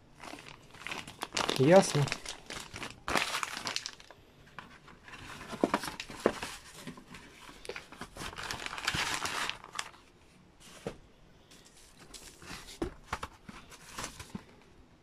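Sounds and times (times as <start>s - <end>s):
plastic bag crinkling: 0.0s - 4.2s, 5.1s - 10.1s.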